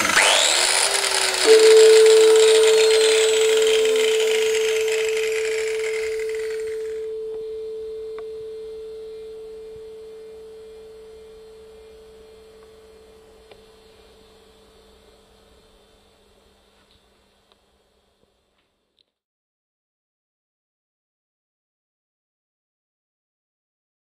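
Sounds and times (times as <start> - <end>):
tuning fork ringing: 1.4 - 14.9.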